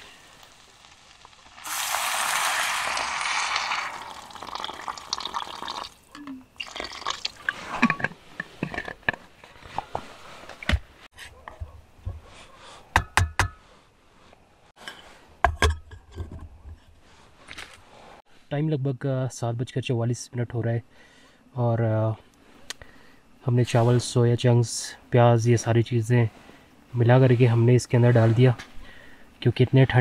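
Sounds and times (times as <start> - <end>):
water pouring into pot: 0.0 - 7.6
cookware knocks and clinks: 15.4 - 16.3.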